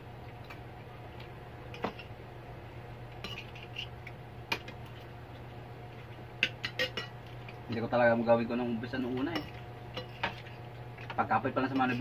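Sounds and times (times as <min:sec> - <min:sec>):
low steady hum: 0:00.0 - 0:12.0
cutlery clinking on plates: 0:06.4 - 0:07.2.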